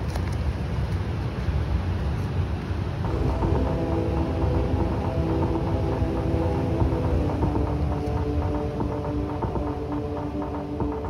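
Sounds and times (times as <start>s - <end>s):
low rumble: 3.0s - 11.0s
sustained chord: 3.0s - 11.0s.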